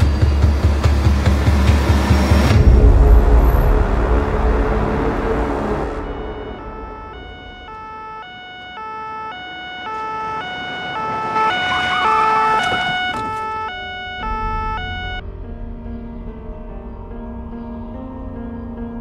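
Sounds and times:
two-tone police siren: 5.8s - 15.2s.

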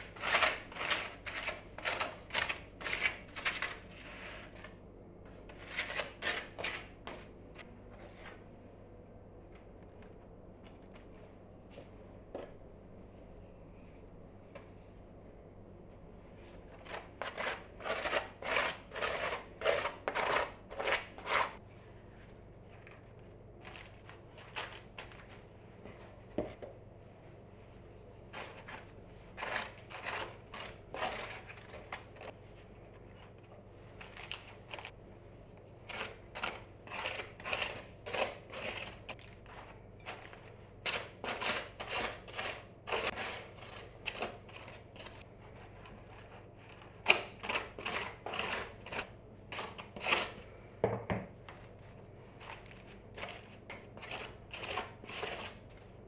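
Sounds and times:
spoon scraping a bowl: 53.2s - 55.6s.

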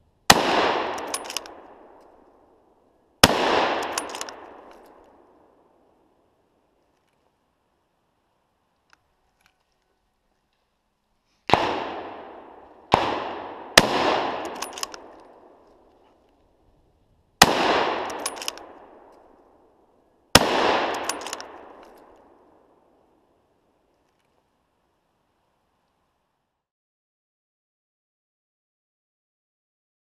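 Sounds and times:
rifle shots: 0.3s - 2.0s, 3.2s - 5.2s, 11.5s - 15.6s, 17.4s - 19.1s, 20.3s - 22.5s
gunshot echo rolling: 0.3s - 2.2s, 3.2s - 5.5s, 11.5s - 15.8s, 17.4s - 19.4s, 20.4s - 22.7s.

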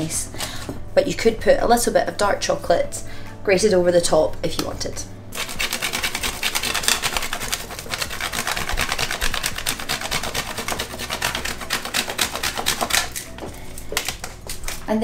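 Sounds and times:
chocolate rasping on metal grater: 5.3s - 14.8s.

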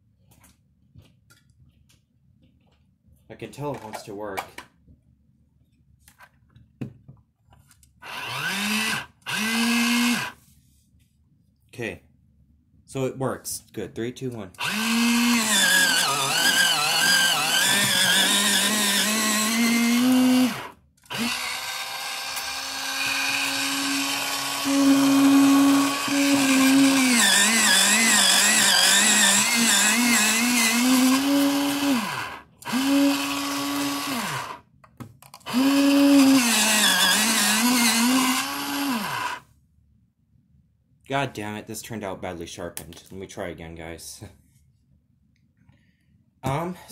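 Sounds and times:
electric pencil sharpener grinding: 8.0s - 10.4s, 14.6s - 34.6s, 35.4s - 39.4s.

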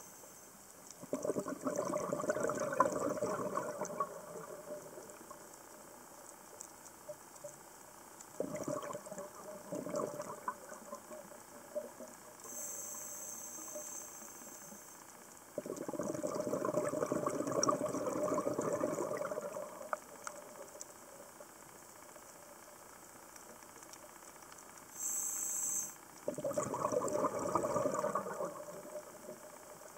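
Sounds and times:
exhaled bubbles burbling underwater: 1.0s - 5.9s, 8.3s - 12.6s, 15.5s - 22.4s, 26.2s - 29.9s
regulator hissing inhale: 12.4s - 15.0s, 24.9s - 26.0s.

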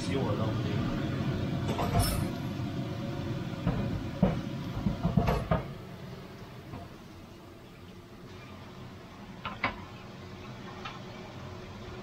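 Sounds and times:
knocks and clatters: 3.7s - 5.7s.

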